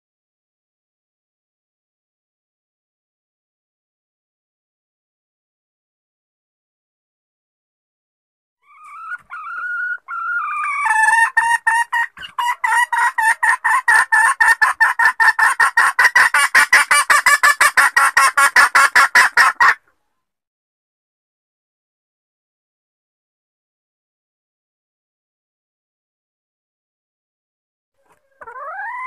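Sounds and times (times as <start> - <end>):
hen whining calls: 8.6 - 11.6, 28.0 - 29.0
hen clucking rapidly: 8.7 - 19.8, 28.0 - 29.0.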